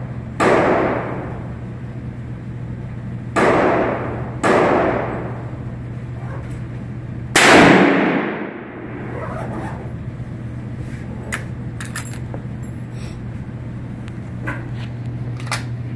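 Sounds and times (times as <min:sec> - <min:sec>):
rifle shot: 0:07.4 - 0:09.0.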